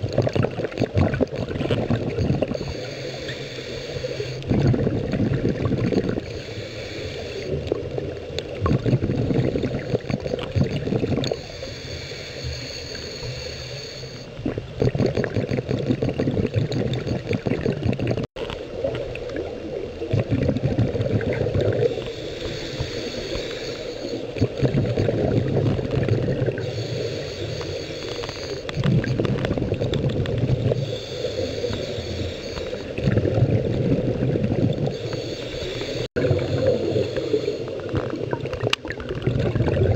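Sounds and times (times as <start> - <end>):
gurgling exhaust bubbles: 0.0 - 2.7, 4.4 - 6.3, 7.5 - 11.4, 14.4 - 22.0, 24.3 - 26.8, 28.7 - 30.9, 32.8 - 35.0, 36.1 - 39.9
regulator hissing inhale: 2.4 - 4.5, 6.2 - 7.6, 11.3 - 14.4, 21.8 - 24.4, 26.5 - 28.8, 30.8 - 33.0, 34.9 - 38.0.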